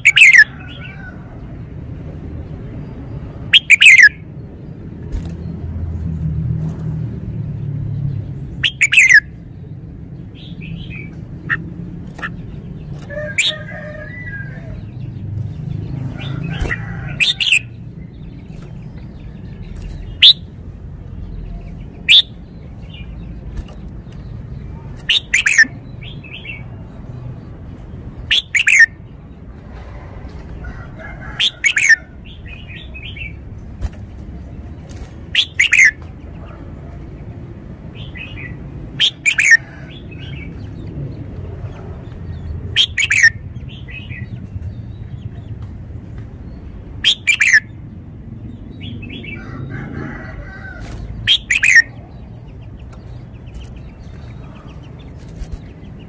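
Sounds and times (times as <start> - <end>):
soft bird chirps: 34.6 - 36.6.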